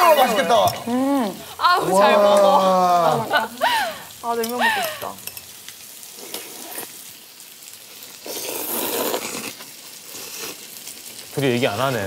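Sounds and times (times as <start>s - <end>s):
noodles being slurped: 6.2s - 7.0s, 8.2s - 10.7s.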